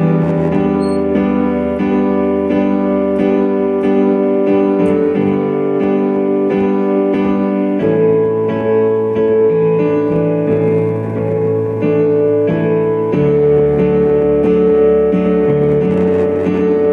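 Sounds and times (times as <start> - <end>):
keyboard playing sustained chords: 0.0 - 16.9.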